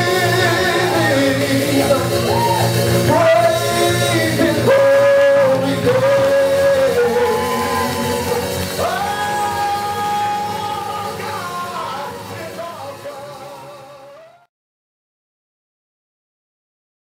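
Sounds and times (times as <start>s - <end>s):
electric keyboards: 0.0s - 14.3s
man singing long notes: 0.0s - 14.5s.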